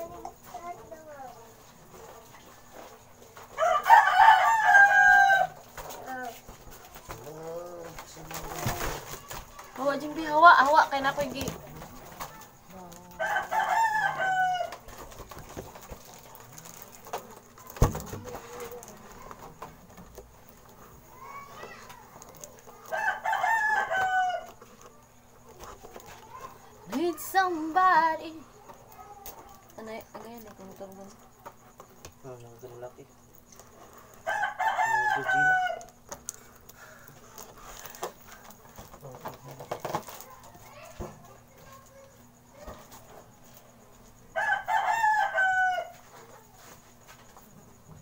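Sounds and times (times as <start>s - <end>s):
rooster crowing: 3.5s - 5.9s, 13.1s - 15.0s, 22.6s - 24.7s, 34.2s - 36.0s, 44.2s - 46.2s.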